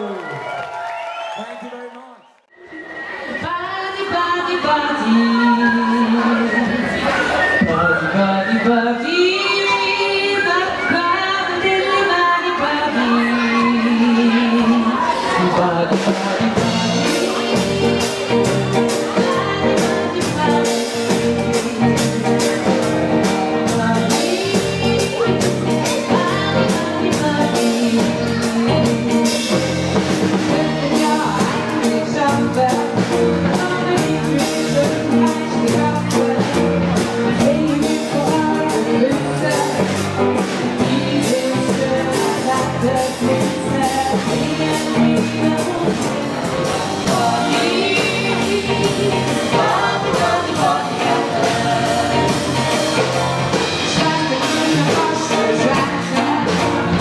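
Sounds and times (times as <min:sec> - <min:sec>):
keyboard: 0:02.6 - 0:57.0
person singing: 0:07.7 - 0:57.0
electric guitars: 0:12.8 - 0:57.0
drum kit beat: 0:13.4 - 0:57.0
electric bass: 0:13.5 - 0:57.0.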